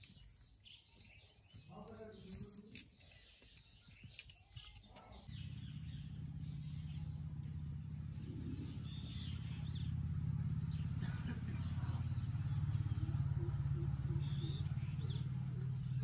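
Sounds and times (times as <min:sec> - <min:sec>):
birds chirping: 0:00.0 - 0:16.0
low motor drone: 0:05.3 - 0:16.0.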